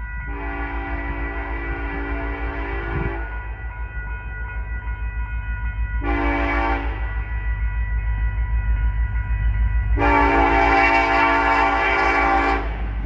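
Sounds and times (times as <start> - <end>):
train low rumble: 0.0 - 13.0
locomotive air horn blasts: 0.3 - 3.3, 6.0 - 7.0, 10.0 - 12.8.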